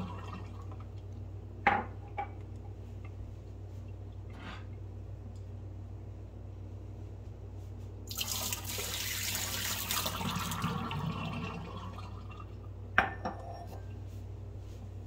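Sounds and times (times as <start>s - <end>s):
water splashing into metal sink: 8.1s - 12.4s.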